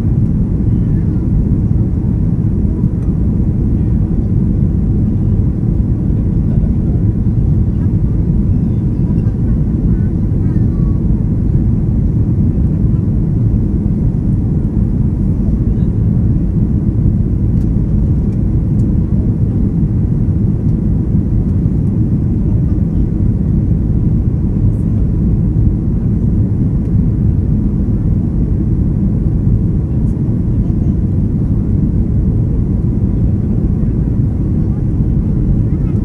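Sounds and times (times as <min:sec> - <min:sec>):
airliner cabin engine rumble: 0:00.0 - 0:36.0.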